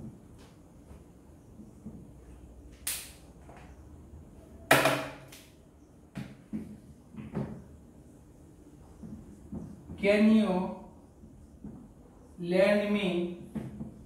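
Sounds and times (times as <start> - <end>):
marker tapping on whiteboard: 9.0 - 10.0.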